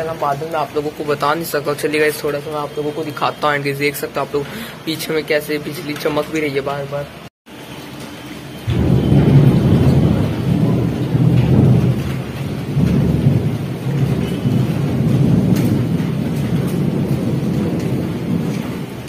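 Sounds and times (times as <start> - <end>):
heavy rain pouring: 0.0 - 19.0
rolling thunder rumble: 8.6 - 19.0.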